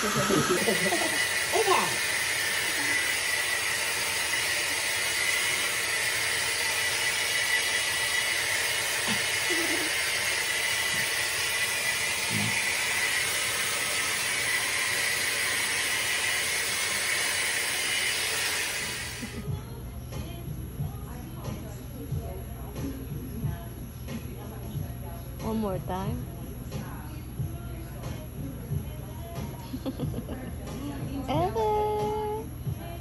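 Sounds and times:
hair dryer blowing: 0.0 - 19.5.

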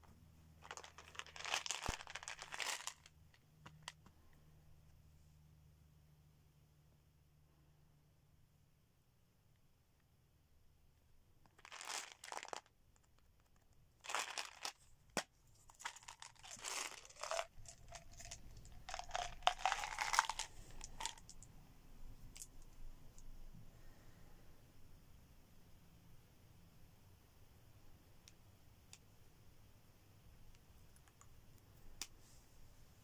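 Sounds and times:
plastic bottle rustling: 0.6 - 3.1, 11.6 - 12.7, 14.0 - 21.3
gum pellets rustling: 0.6 - 4.0, 11.5 - 21.4.

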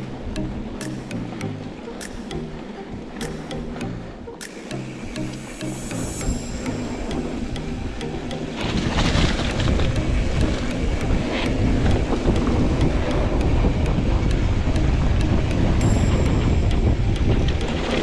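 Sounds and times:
background music: 0.0 - 18.0
wind rushing over microphone: 6.0 - 18.0.

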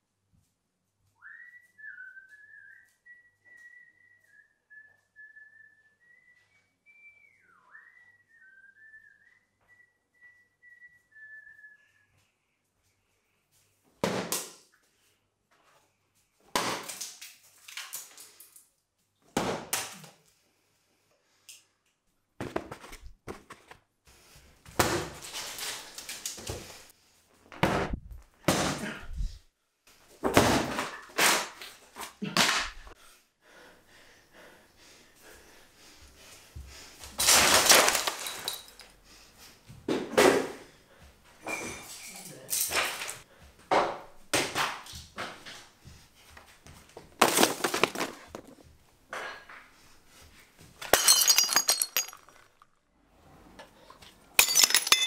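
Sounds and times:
thuds and breaking knocks: 37.2 - 38.7, 47.1 - 48.6.

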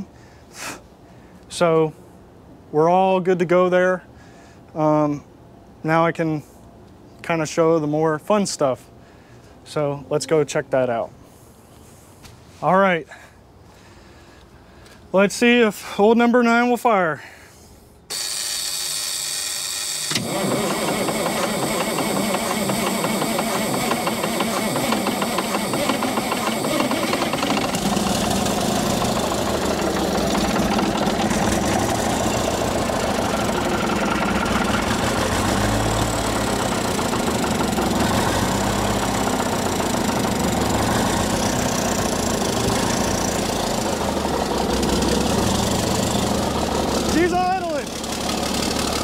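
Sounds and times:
starter motor cranking: 18.1 - 49.0
diesel engine running: 19.7 - 49.0.

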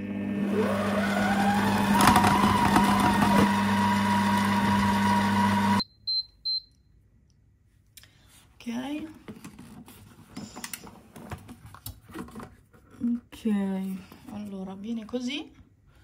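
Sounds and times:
mixer motor humming and whining: 0.0 - 5.8
short high beeps: 5.8 - 6.8.

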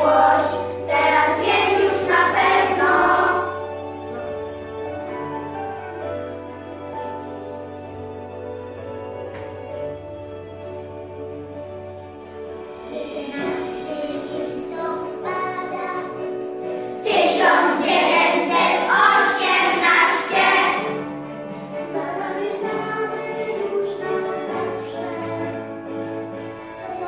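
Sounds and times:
children singing together: 0.0 - 4.2, 12.8 - 27.0
instrumental backing track: 0.0 - 27.0.

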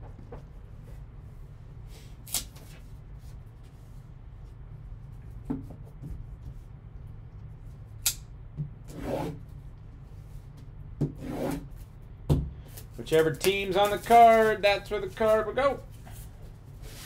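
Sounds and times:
steady low hum: 0.0 - 17.0
shrink-wrap crinkling: 12.8 - 15.8.

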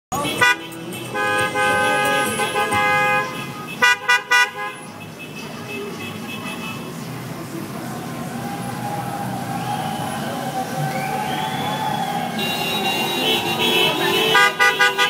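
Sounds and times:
car horns honking: 0.1 - 7.0, 12.3 - 15.0
busy street noise: 0.1 - 15.0.

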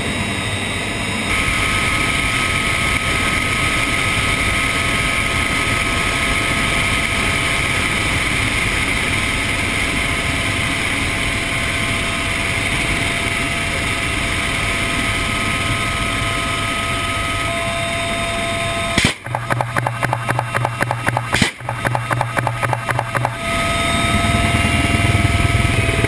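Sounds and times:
helicopter engine noise: 0.0 - 26.0
faint whine tones: 11.7 - 26.0.

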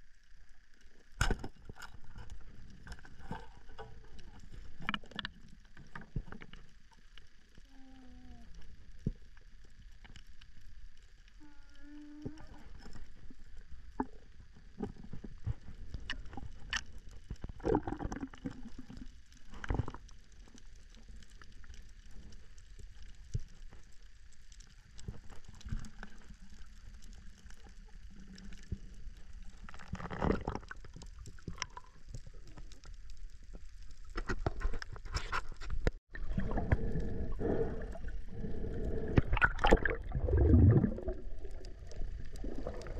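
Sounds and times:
low underwater rumble: 0.0 - 42.9
water gurgling and sloshing: 0.0 - 42.9
sharp clicks and crackles: 0.7 - 7.7, 12.2 - 36.0.

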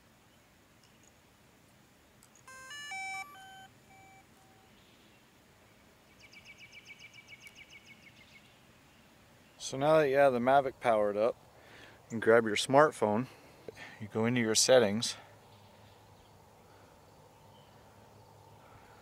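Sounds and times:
rapid high chirps: 2.5 - 4.6
drone power-up beeps: 2.5 - 4.7.

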